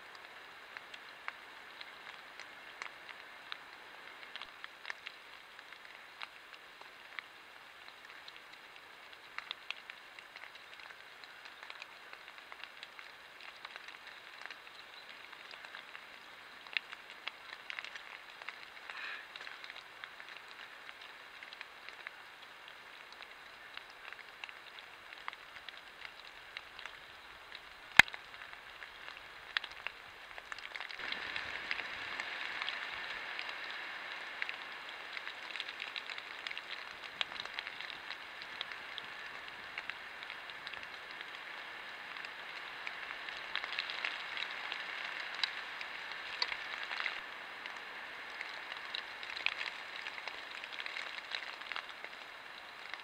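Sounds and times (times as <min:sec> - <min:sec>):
light dripping ticks: 0:00.0 - 0:53.0
steady hiss: 0:00.0 - 0:53.0.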